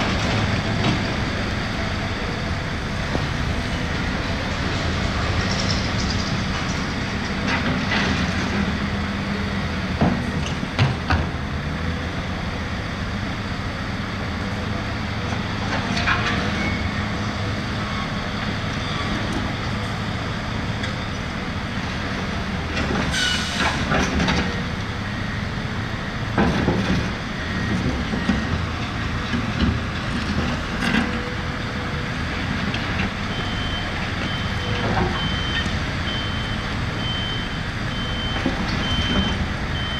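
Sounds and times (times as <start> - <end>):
heavy diesel engines running: 0.0 - 39.9
reversing alarm beeping: 33.2 - 39.9.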